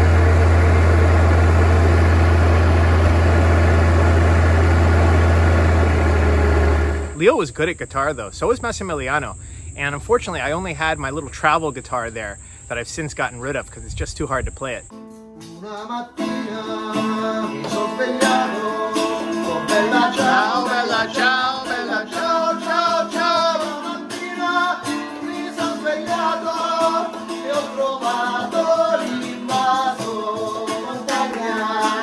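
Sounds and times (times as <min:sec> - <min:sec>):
guitar strumming: 0:00.0 - 0:07.2, 0:14.9 - 0:32.0
tambourine: 0:14.9 - 0:32.0
man singing: 0:15.4 - 0:32.0.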